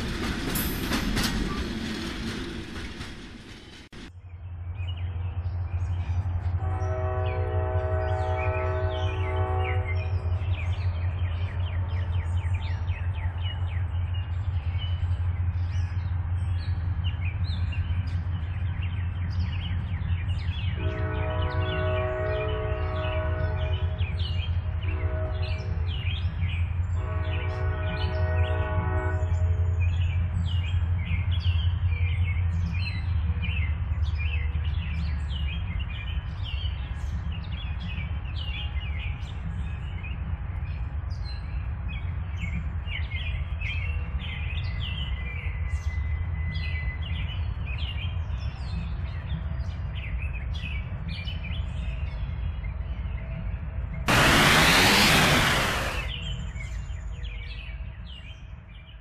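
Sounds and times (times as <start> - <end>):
locomotive rumbling: 0.0 - 29.2, 53.9 - 56.7
train air horn: 6.6 - 10.3, 20.8 - 24.0, 24.8 - 25.7, 27.0 - 29.9, 54.1 - 56.2
birds chirping: 54.0 - 58.9.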